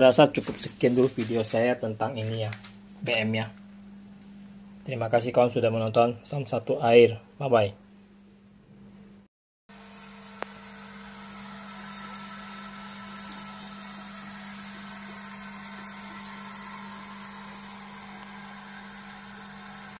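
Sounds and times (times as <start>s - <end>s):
air pump humming: 9.7s - 20.0s.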